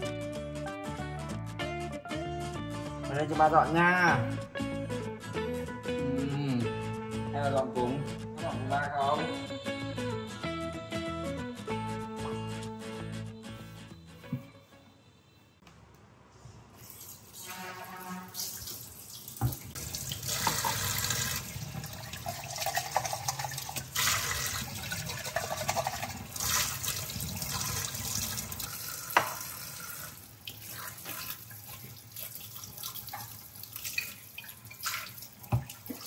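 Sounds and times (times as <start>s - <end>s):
tap water splashing into sink: 18.4s - 36.0s.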